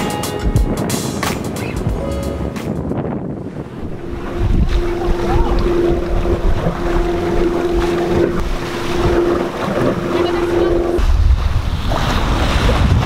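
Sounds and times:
water splashing along hull: 0.0 - 13.0
wind buffeting microphone: 0.4 - 13.0
steady humming tone: 3.6 - 11.0.

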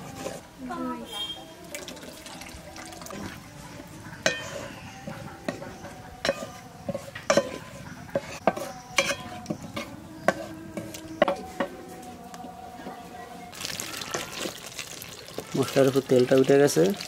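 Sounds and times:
paste frying in oil: 13.5 - 17.0.

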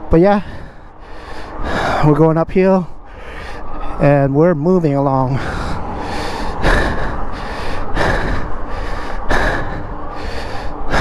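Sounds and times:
low rumble: 0.0 - 11.0
person breathing hard: 0.3 - 2.2, 2.9 - 4.0, 5.3 - 11.0.

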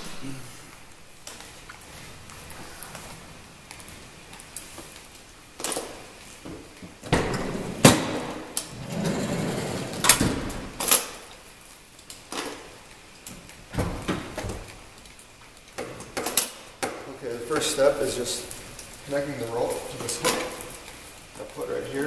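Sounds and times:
sliding door running along track: 6.9 - 11.0
sliding door clicks: 7.0 - 11.2.

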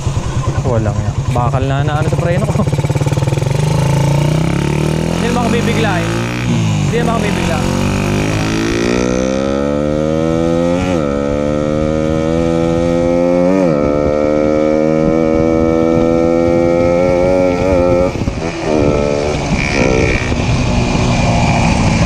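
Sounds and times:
motorcycle engine accelerating: 0.0 - 22.0
wind rushing over microphone: 2.8 - 22.0.

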